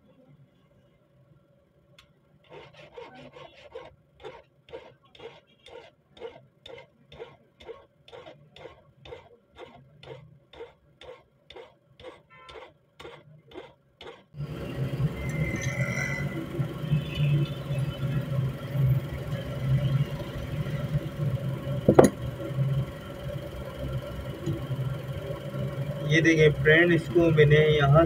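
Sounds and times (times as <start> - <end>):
hand file scraping steel: 2.4 - 14.3.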